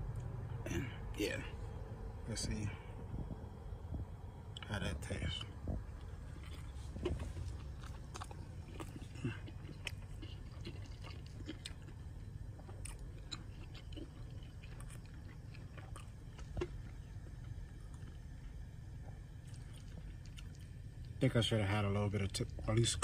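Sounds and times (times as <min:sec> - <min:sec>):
low background rumble: 0:00.0 - 0:23.0
person chewing food: 0:05.4 - 0:21.2.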